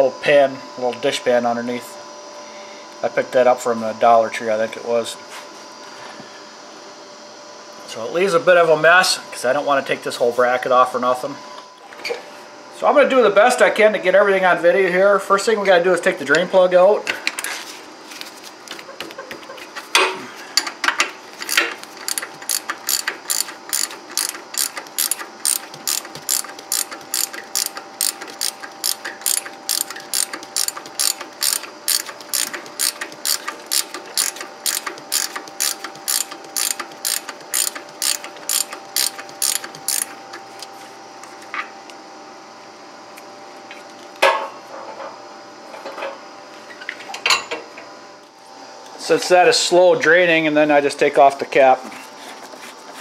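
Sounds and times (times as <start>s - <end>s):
ratchet wrench clicking: 21.4s - 40.2s.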